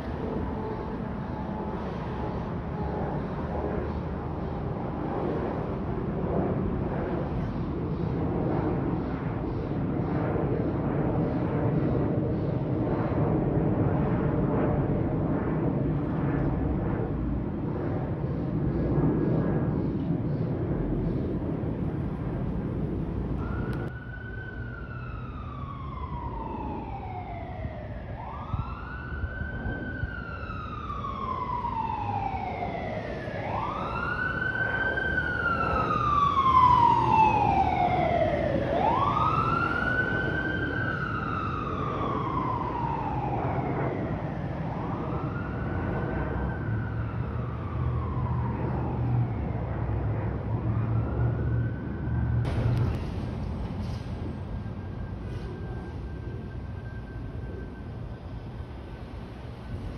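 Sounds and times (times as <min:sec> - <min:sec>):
emergency siren wailing: 0:00.0 - 0:16.0, 0:20.6 - 0:59.9
low rumble: 0:52.5 - 0:56.7.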